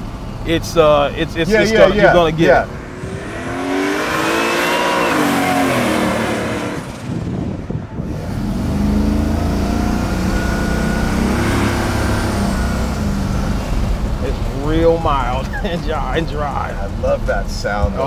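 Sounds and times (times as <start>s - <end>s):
car engine accelerating past: 1.8s - 7.2s.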